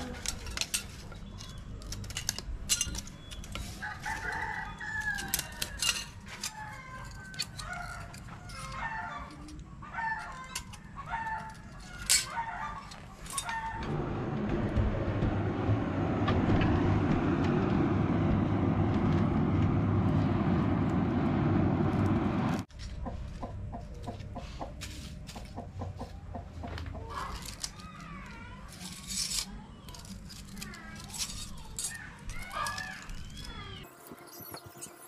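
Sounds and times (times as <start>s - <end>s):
metal pieces clinking: 0.1s - 9.6s, 10.2s - 13.7s, 28.7s - 33.7s
forge fire rushing under air blast: 13.9s - 22.7s
chickens clucking: 22.9s - 27.4s.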